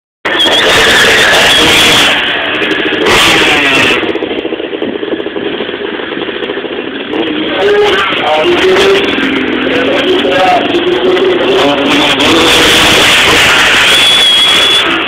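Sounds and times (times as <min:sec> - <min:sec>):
dirt bike engine revving: 0:00.3 - 0:15.0
burst of rushing noise: 0:09.0 - 0:15.0.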